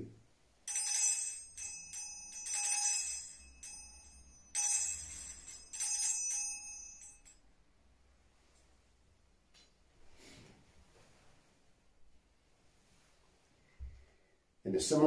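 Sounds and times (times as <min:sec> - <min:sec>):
bells jingling: 0:00.7 - 0:07.4.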